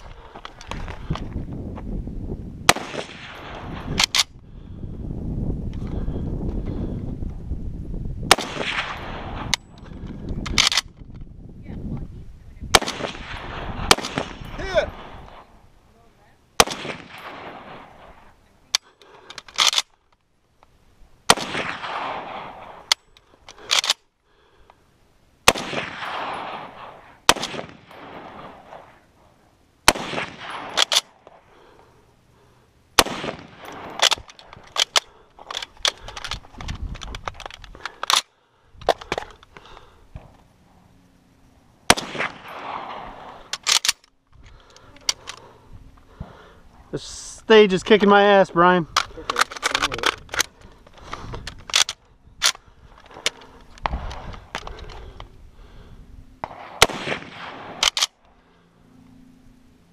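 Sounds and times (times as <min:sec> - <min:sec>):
rifle shots: 0:02.6 - 0:04.3, 0:08.3 - 0:09.6, 0:12.7 - 0:15.6, 0:16.6 - 0:18.4, 0:21.2 - 0:23.0, 0:25.4 - 0:29.0, 0:29.8 - 0:31.4, 0:33.0 - 0:35.2, 0:41.9 - 0:44.0, 0:56.4 - 0:58.2
gunshot echo off hills: 0:02.7 - 0:03.8, 0:08.3 - 0:09.5, 0:12.7 - 0:15.5, 0:16.6 - 0:18.2, 0:21.3 - 0:22.9, 0:25.4 - 0:29.0, 0:29.8 - 0:31.0, 0:33.0 - 0:34.1, 0:41.9 - 0:43.4, 0:56.4 - 0:57.9.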